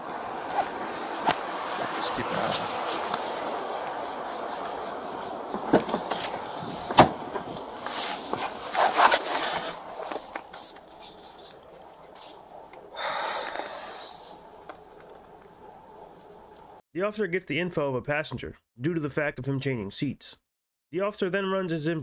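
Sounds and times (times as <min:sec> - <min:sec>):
footsteps: 0:00.0 - 0:15.6
clothing rustle: 0:00.2 - 0:14.5
short hiss: 0:13.0 - 0:14.4.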